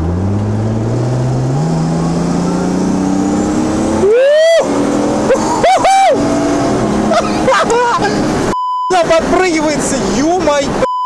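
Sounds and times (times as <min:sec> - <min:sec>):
car engine at full throttle: 0:00.0 - 0:10.8
loud rising wail: 0:00.5 - 0:08.4.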